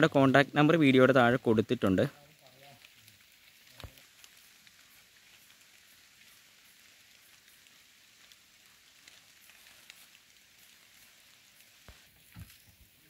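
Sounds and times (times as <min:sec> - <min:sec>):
faint high-pitched hiss: 0:00.0 - 0:13.0
faint ticks: 0:02.1 - 0:13.0.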